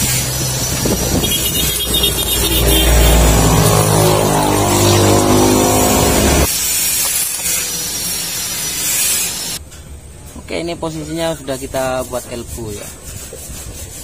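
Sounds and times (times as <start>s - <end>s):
welding arc crackling: 0.0s - 9.6s
welding machine low buzz: 0.1s - 9.6s.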